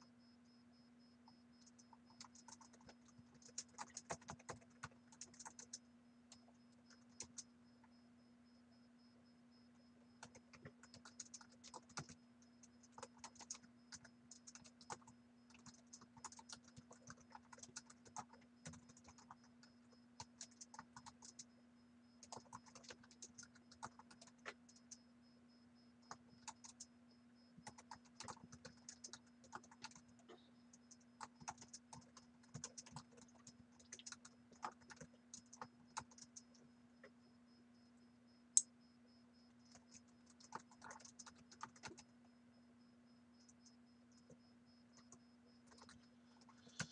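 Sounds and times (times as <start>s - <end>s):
faint steady hum: 0.0s - 46.9s
computer keyboard typing: 1.6s - 7.5s, 10.2s - 21.5s, 22.2s - 25.0s, 26.1s - 26.9s, 27.6s - 37.1s, 39.6s - 42.1s, 45.0s - 46.9s.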